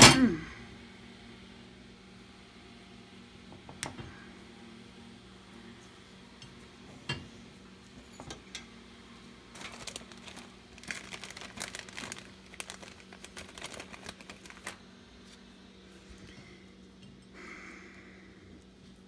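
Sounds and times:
faint low hum: 0:00.1 - 0:19.0
plastic bag crinkling: 0:09.5 - 0:14.8.

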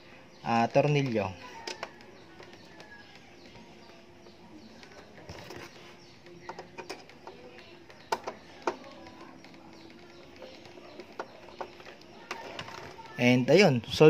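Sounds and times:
light plastic clicks and knocks: 0:06.4 - 0:13.0.

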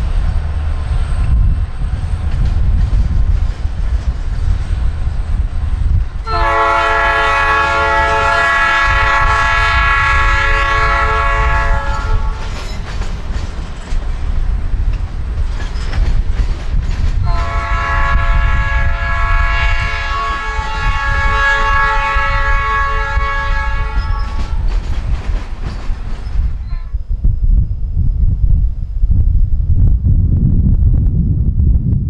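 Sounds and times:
freight train rumbling past: 0:00.0 - 0:32.0
diesel locomotive horn chord: 0:06.2 - 0:12.4, 0:17.2 - 0:24.6.

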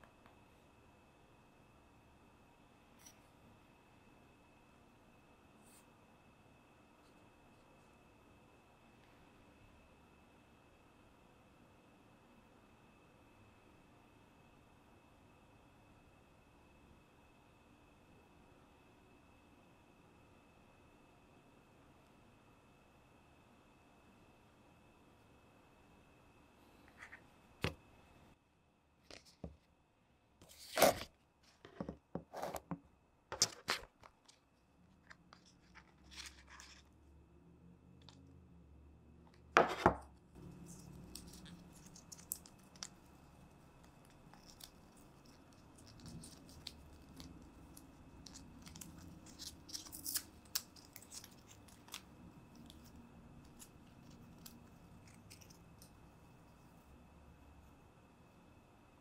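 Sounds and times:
paper rustling and crinkling: 0:30.4 - 0:31.1.

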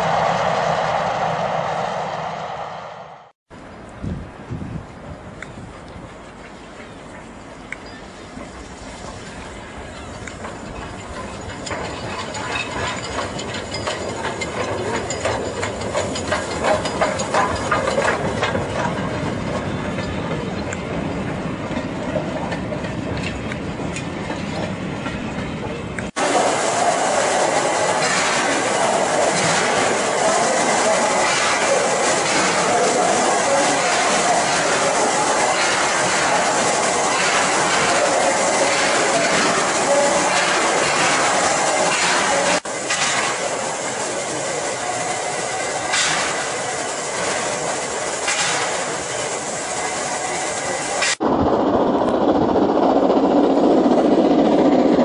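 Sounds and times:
steady rushing noise: 0:00.0 - 0:06.1, 0:20.6 - 0:55.0
train wheels clicking over rail joints: 0:05.2 - 0:51.3
steam hissing from locomotive: 0:05.6 - 0:22.6, 0:26.1 - 0:51.3.

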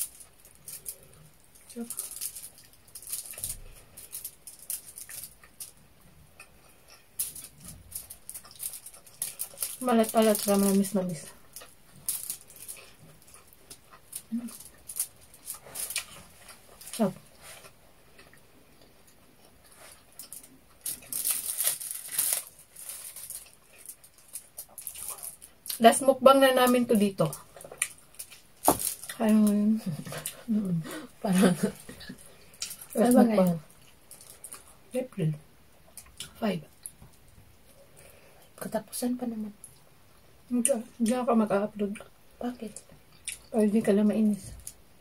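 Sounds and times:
crisp crunching while chewing: 0:00.0 - 0:05.8, 0:06.4 - 0:25.9, 0:26.6 - 0:30.5, 0:31.5 - 0:34.8
foil crinkling: 0:00.0 - 0:05.8, 0:07.2 - 0:17.7, 0:19.8 - 0:25.9, 0:26.6 - 0:30.4.

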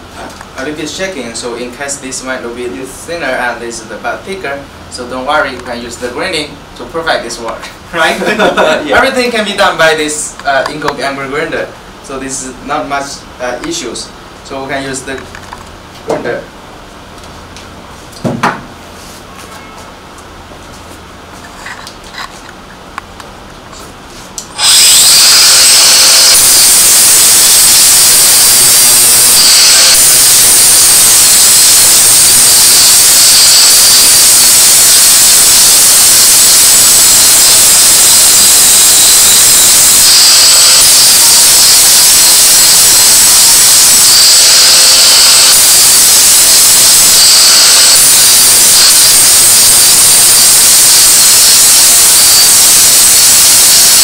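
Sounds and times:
angle grinder grinding: 0:24.5 - 0:54.0.

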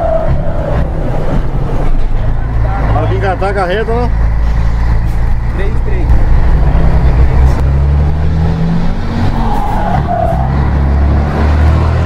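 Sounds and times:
diesel truck engine pulling: 0:00.0 - 0:12.0
turbocharger whistle: 0:09.3 - 0:10.8.

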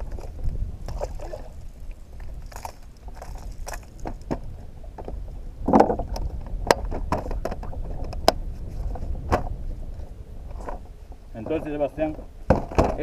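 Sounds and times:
wind and water rumble: 0:00.0 - 0:13.0
kayak gear clicks and knocks: 0:02.3 - 0:09.5, 0:12.5 - 0:13.0.

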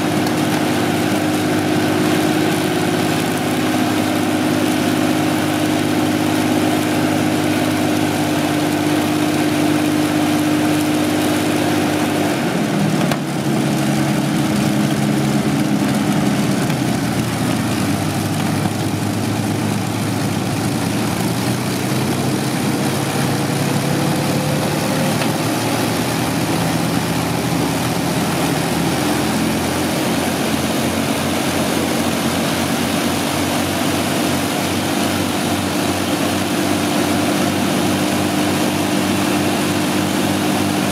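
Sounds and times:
aero engines running: 0:00.0 - 0:40.9.

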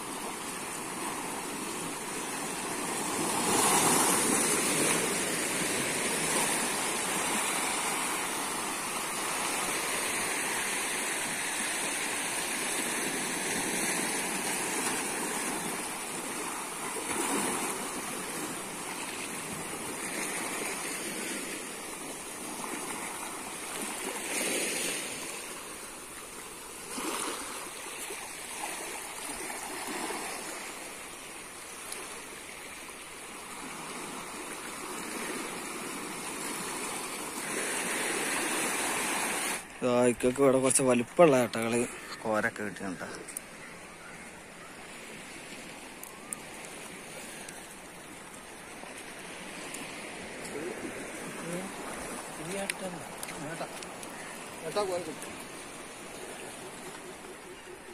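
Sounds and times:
waves breaking on rocky shore: 0:00.0 - 0:57.9.

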